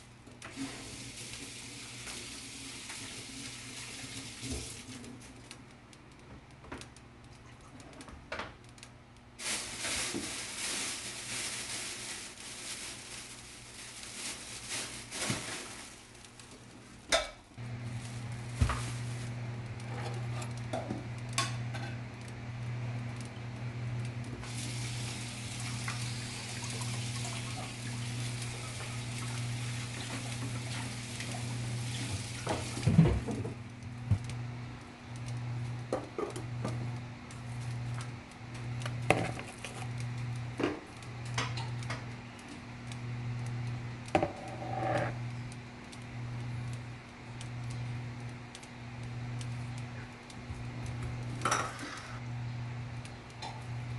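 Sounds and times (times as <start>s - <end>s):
pans and utensils clattering: 51.4s - 52.2s.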